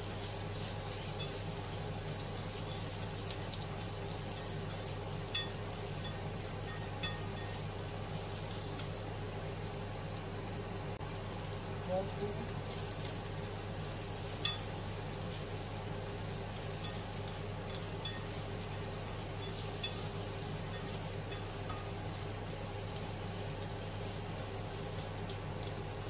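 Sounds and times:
vegetables sizzling in a pan: 0:00.0 - 0:26.0
chopsticks clicking against pan: 0:00.2 - 0:09.0, 0:14.0 - 0:14.8, 0:16.7 - 0:23.8, 0:24.8 - 0:25.9.

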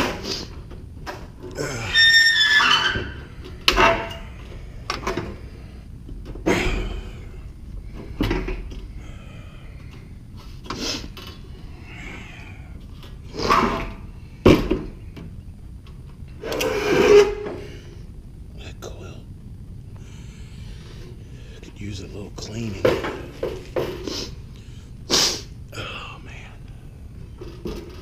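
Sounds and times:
sheet metal clanking and scraping: 0:02.4 - 0:04.4.

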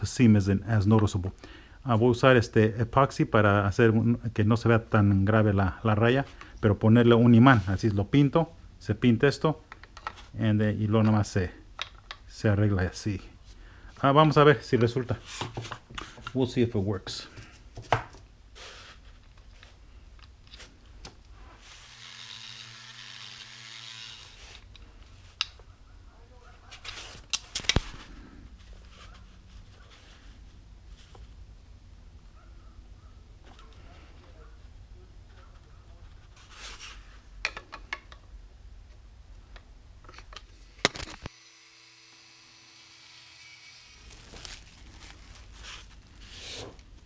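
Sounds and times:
rotary tool grinding: 0:21.6 - 0:24.7.

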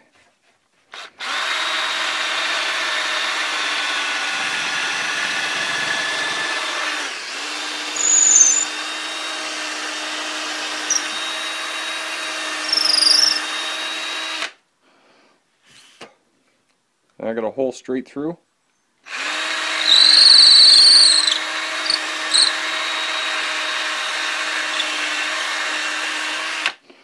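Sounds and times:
cordless drill boring wood: 0:00.9 - 0:14.6, 0:19.1 - 0:26.8
short high-pitched squeaks: 0:08.0 - 0:08.7, 0:10.9 - 0:11.2, 0:12.6 - 0:13.4, 0:19.8 - 0:22.6.

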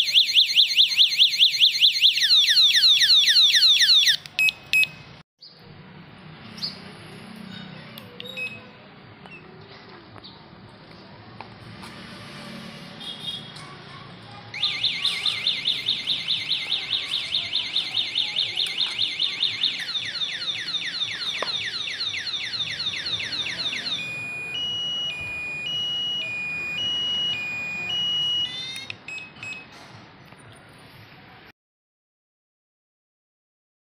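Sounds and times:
bicycle alarm electronic siren: 0:00.0 - 0:04.9, 0:14.6 - 0:29.0.

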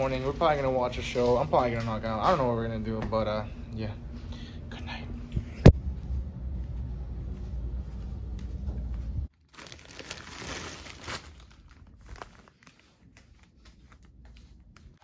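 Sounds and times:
low rumble: 0:03.5 - 0:09.3
plastic bag crinkling: 0:09.3 - 0:15.0.

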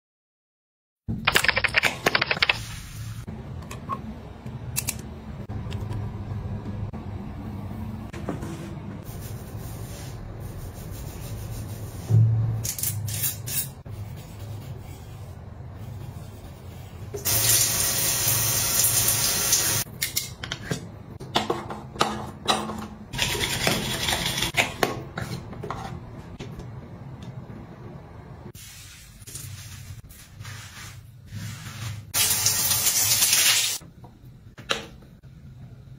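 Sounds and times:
shower water running: 0:17.2 - 0:19.9, 0:28.6 - 0:33.8.

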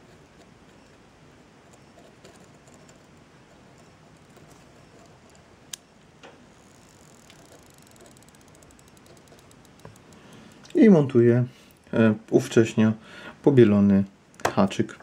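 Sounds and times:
faint fast crackle: 0:06.6 - 0:10.7
soldering iron ticks and clicks: 0:07.1 - 0:10.8.

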